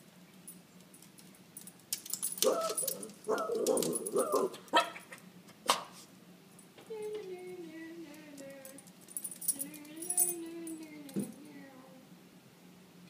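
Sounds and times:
small dog barking excitedly: 2.4 - 6.0.

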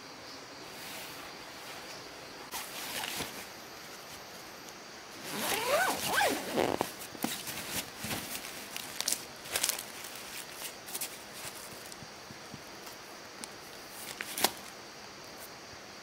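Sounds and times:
fabric rustling: 2.5 - 4.3, 5.2 - 11.9
zipper being pulled shut: 5.2 - 7.0.

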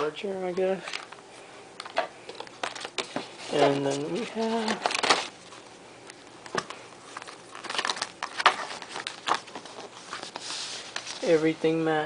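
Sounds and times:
cardboard and paper rustling: 1.8 - 5.7, 6.5 - 12.0.

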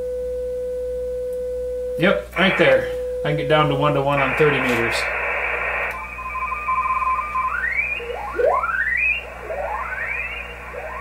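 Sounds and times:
radio static hiss: 2.3 - 11.0
steady radio tone: 2.4 - 11.0
carrier tones sweeping upward: 4.2 - 11.0.

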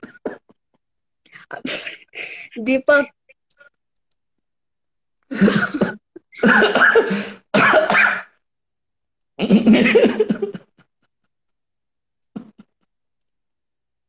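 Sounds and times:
person laughing: 5.3 - 7.1.

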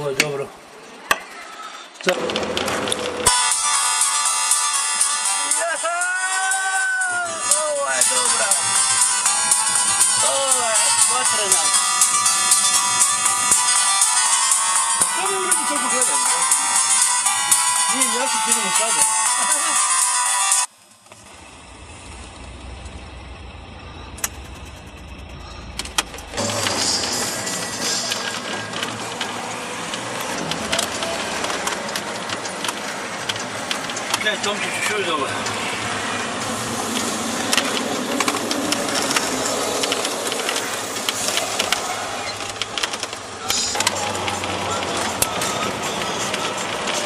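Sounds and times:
car engine idling: 20.7 - 47.0
loud rushing noise: 21.5 - 47.0
sharp clicks: 24.1 - 35.6.

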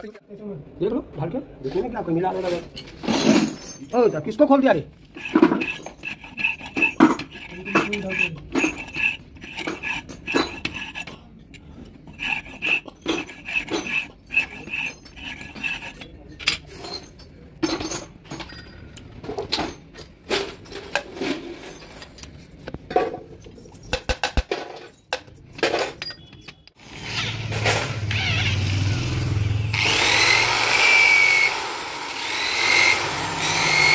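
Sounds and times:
metal valves clinking and scraping: 2.3 - 28.0.

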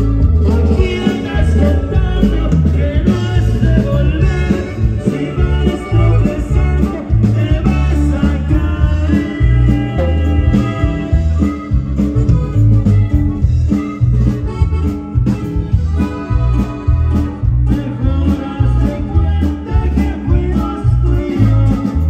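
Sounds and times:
live rock band playing: 0.0 - 22.0
man singing into microphone: 0.2 - 11.4, 17.2 - 22.0.

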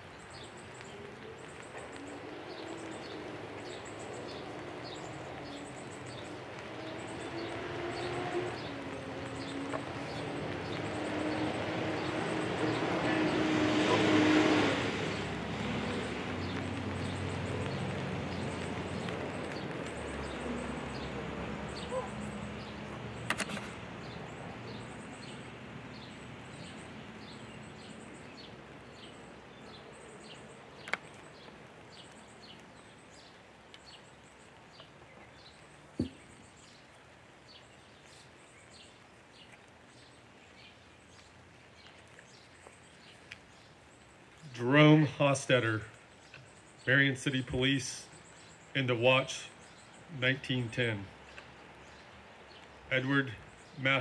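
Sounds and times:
vehicle passing: 1.0 - 33.3
low thump: 36.0 - 36.2.

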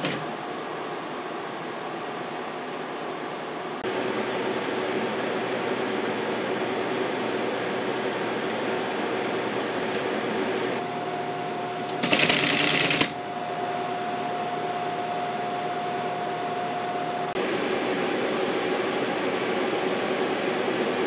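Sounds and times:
teletype clattering: 0.0 - 0.2, 11.9 - 13.2
mechanical whir and hum: 0.0 - 21.0.

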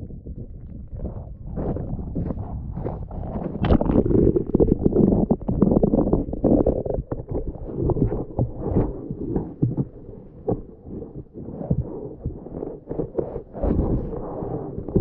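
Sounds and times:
muffled underwater rumble: 0.0 - 15.0
underwater knocks and thuds: 3.5 - 15.0.

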